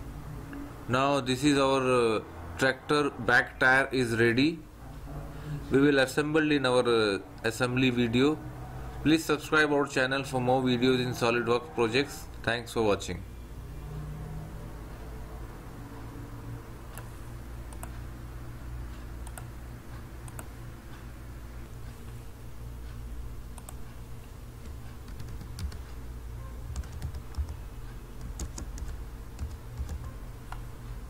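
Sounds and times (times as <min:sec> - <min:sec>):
steady low hum: 0:00.0 - 0:31.0
keyboard and mouse clicks: 0:16.9 - 0:18.0, 0:19.2 - 0:19.5, 0:20.2 - 0:20.5, 0:24.6 - 0:25.9, 0:26.7 - 0:27.6, 0:28.2 - 0:30.7.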